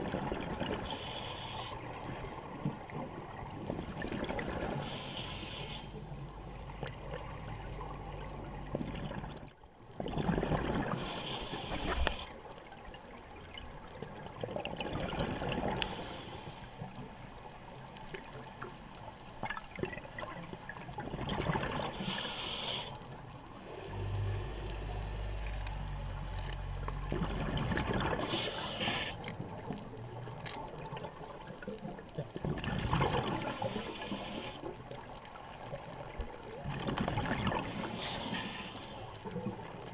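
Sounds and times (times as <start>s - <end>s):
bubbly exhalations underwater: 8.8s - 11.0s, 27.1s - 28.4s, 32.4s - 33.5s
low rumble: 23.5s - 27.9s.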